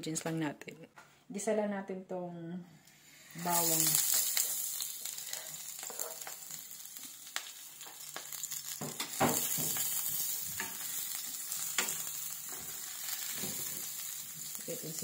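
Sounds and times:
garlic sizzling in hot oil: 3.1s - 15.0s.

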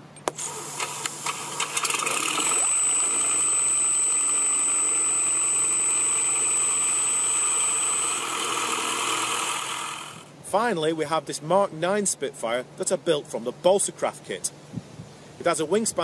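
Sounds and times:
electric motor whine: 0.3s - 10.3s.

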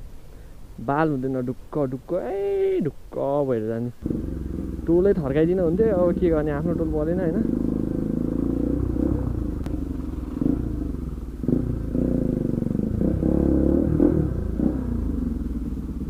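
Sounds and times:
motorcycle engine revving: 4.0s - 16.0s.

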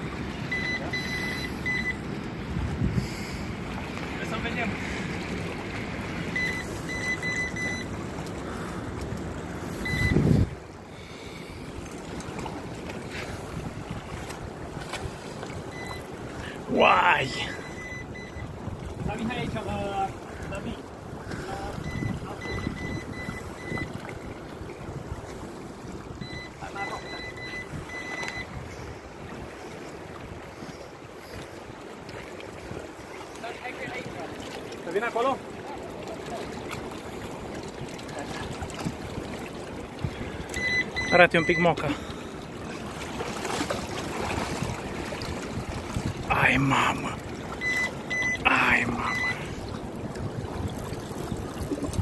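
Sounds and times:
riverside noise: 0.0s - 52.0s
short high beeps: 0.5s - 2.0s, 6.3s - 7.9s, 9.8s - 10.4s, 15.7s - 16.1s, 17.4s - 18.5s, 21.8s - 24.3s, 26.2s - 28.6s, 40.5s - 41.9s, 47.6s - 49.6s
wind buffeting microphone: 2.3s - 4.0s, 9.0s - 10.8s, 43.8s - 46.3s, 49.5s - 52.0s.

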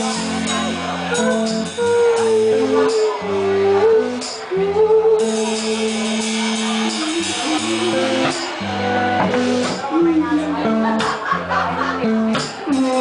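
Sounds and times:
live rock band playing: 0.0s - 13.0s
cymbals washing: 5.2s - 10.0s.

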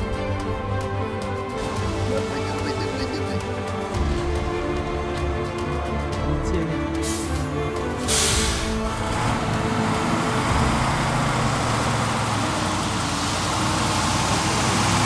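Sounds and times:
diesel truck engine running: 0.0s - 15.0s
brief hiss: 8.1s - 8.8s.

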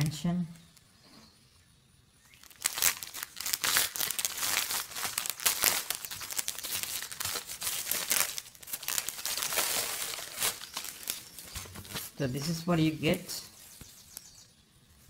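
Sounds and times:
plastic shrink wrap crinkling: 2.3s - 12.7s.

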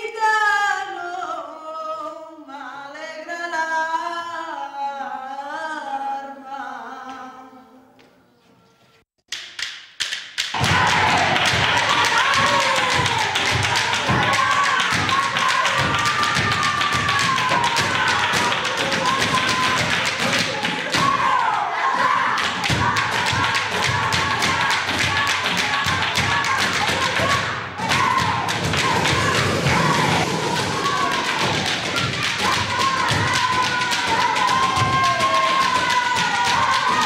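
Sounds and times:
children handclapping rhythmically: 9.3s - 37.0s
children singing: 10.6s - 37.0s.

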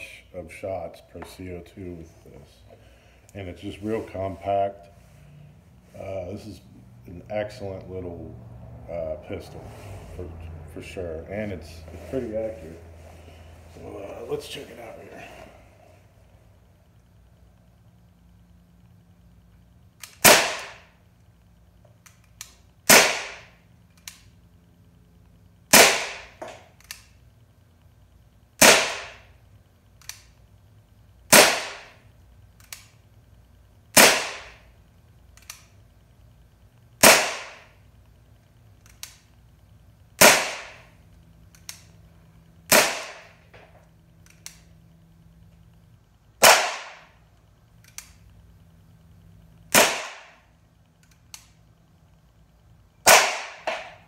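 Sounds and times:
bb pistol shots: 20.0s - 20.9s, 22.8s - 23.5s, 25.7s - 26.4s, 28.6s - 29.3s, 31.3s - 32.0s, 33.9s - 34.6s, 37.0s - 37.7s, 40.2s - 40.9s, 42.7s - 43.4s, 46.4s - 47.1s, 49.7s - 50.4s, 53.0s - 54.0s.

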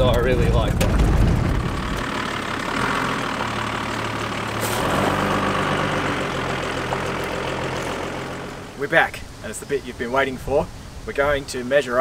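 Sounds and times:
low rumble inside cab: 0.0s - 4.2s
truck engine running at low revs: 0.0s - 8.8s.

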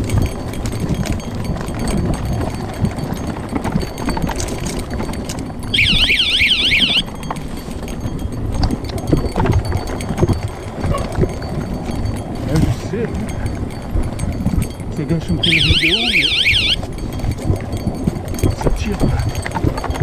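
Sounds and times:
bike tyres rumbling on rocky trail: 0.0s - 16.2s, 16.8s - 20.0s
bike knocking and rattling: 0.0s - 20.0s
high warbling tone: 5.8s - 7.0s, 15.4s - 16.8s.

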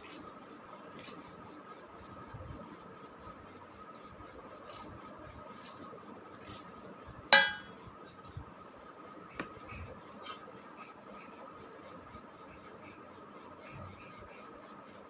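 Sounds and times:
sharp ringing clink: 7.4s - 7.8s.

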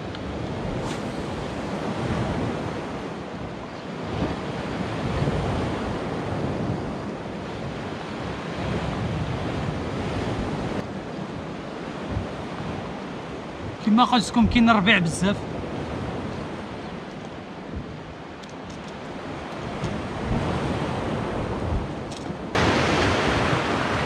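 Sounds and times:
sea surf washing onto shore: 0.0s - 24.0s
wind buffeting microphone: 0.0s - 24.0s.

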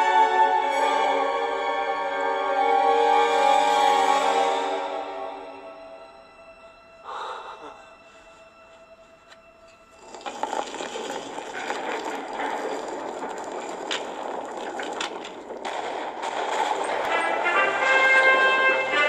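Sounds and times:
falling rock grinding: 10.0s - 19.0s
rock cracks: 10.0s - 19.0s.

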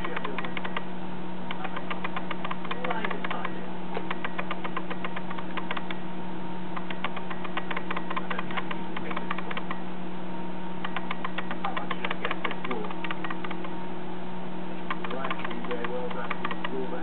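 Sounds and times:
rapid irregular ticking: 0.0s - 6.1s, 6.7s - 10.0s, 10.7s - 14.0s, 14.8s - 17.0s
steady electrical hum: 0.0s - 17.0s.

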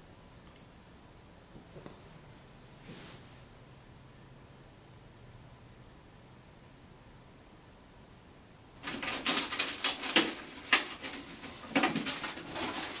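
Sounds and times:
metal foil crinkling: 8.8s - 13.0s.

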